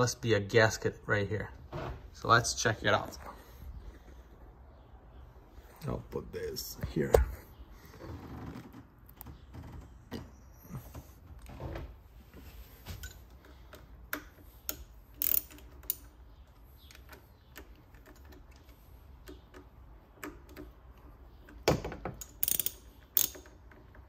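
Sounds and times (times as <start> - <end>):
metal clicks: 13.0 - 24.0
ratchet wrench clicking: 14.2 - 16.2, 22.2 - 23.7.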